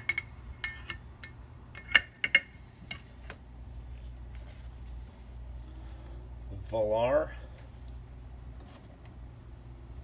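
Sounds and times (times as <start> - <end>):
metal parts clinking: 0.0 - 3.1
low steady hum: 0.0 - 10.0.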